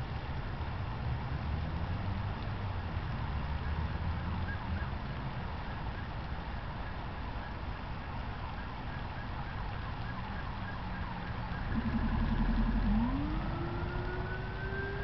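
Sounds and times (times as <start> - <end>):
road traffic rumble: 0.0 - 15.0
police siren wailing: 5.6 - 15.0.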